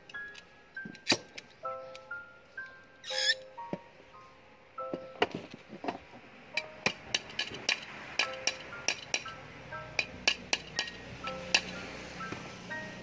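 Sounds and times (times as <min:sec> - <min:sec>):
soft background music: 0:00.0 - 0:13.0.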